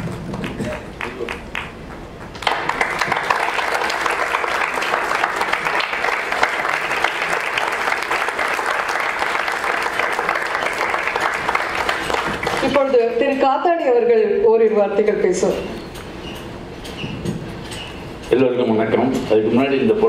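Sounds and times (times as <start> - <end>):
audience applause: 0.0 - 13.0.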